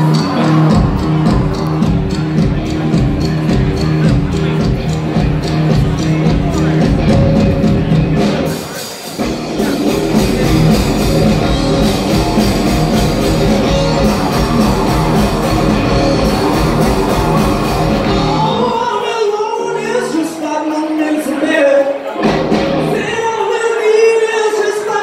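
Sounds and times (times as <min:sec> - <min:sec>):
bass: 0:00.0 - 0:18.9, 0:22.2 - 0:23.3
drum kit: 0:00.0 - 0:24.1
electric guitars: 0:00.0 - 0:25.0
keyboard: 0:00.0 - 0:25.0.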